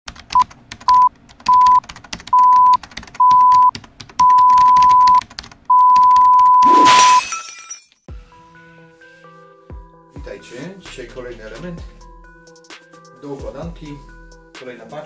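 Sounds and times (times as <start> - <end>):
electronic beeps: 0.9 - 1.8, 2.4 - 7.2.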